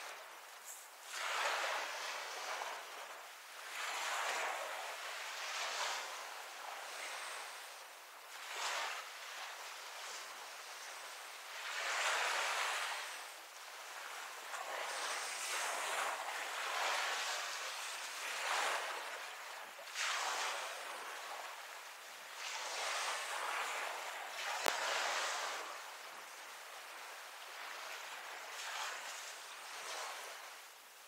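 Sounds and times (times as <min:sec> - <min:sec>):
waves washing onto beach: 0:00.0 - 0:31.0.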